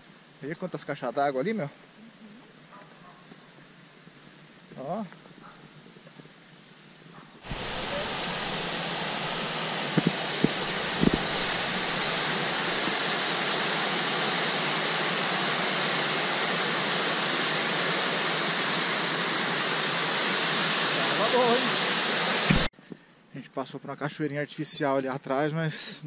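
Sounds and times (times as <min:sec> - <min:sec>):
water rushing over weir: 0:07.4 - 0:22.7.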